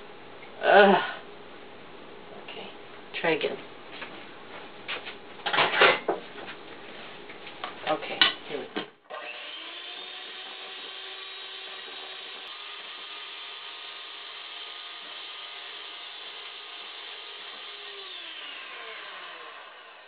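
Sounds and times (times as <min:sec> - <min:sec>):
electric mixer whining: 0:09.1 - 0:20.0.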